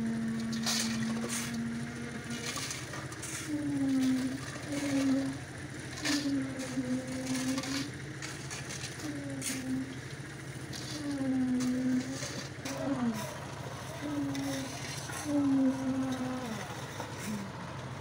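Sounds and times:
engine hum: 0.0 - 18.0
shovels scraping crushed stone: 2.3 - 5.4, 6.0 - 9.6, 10.6 - 13.5.

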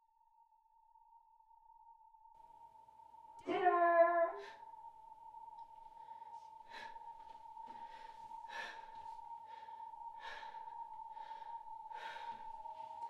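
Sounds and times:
woman breathing heavily: 5.6 - 13.0.

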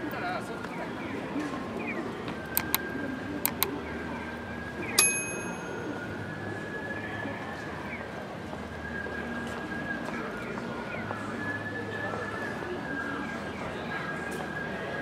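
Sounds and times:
murmur of passers-by: 0.0 - 15.0
sharp clicks: 2.5 - 2.8, 3.4 - 3.7
bright metallic ding: 5.0 - 5.8.

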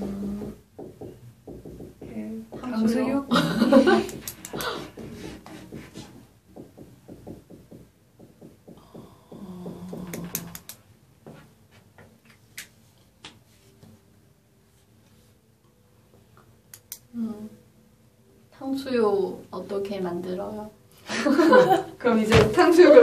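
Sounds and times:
marker writing on whiteboard: 3.8 - 11.9.

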